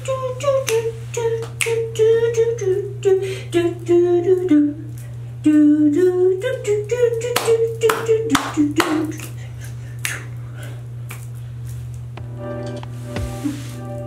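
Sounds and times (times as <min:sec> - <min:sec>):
woman singing wordless tune: 0:00.0 - 0:09.3
finger snaps: 0:00.4 - 0:01.9, 0:10.0 - 0:12.2.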